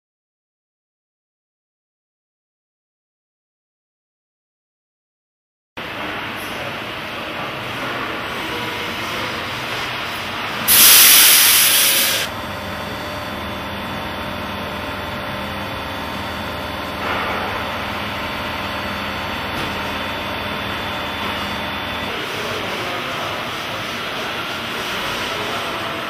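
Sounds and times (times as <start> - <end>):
machine mechanical hum: 5.8 - 26.0
air hiss: 10.7 - 12.3.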